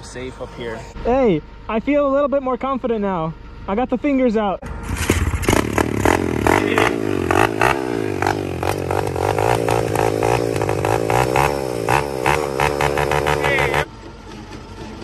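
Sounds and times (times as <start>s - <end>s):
small motorbike engine revving: 4.6s - 13.9s.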